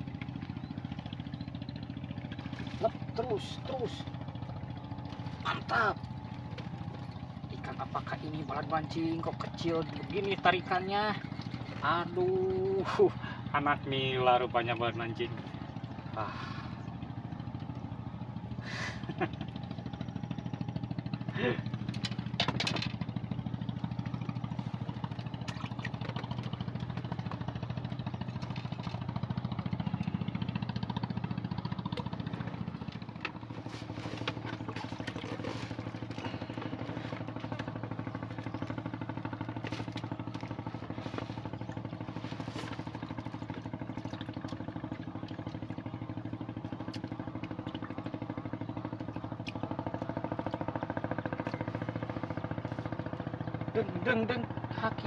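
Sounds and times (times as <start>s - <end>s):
engine droning: 0.0s - 55.0s.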